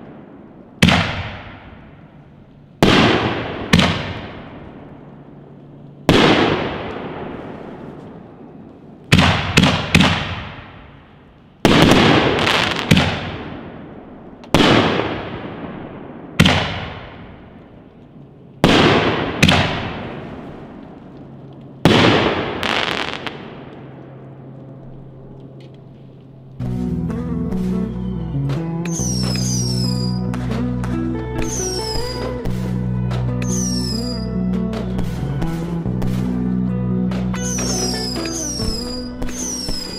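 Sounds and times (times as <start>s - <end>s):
fireworks bangs echoing: 0.0s - 2.2s, 2.8s - 5.0s, 6.0s - 17.8s, 18.6s - 21.0s, 21.8s - 24.3s, 28.9s - 36.4s, 37.1s - 39.9s.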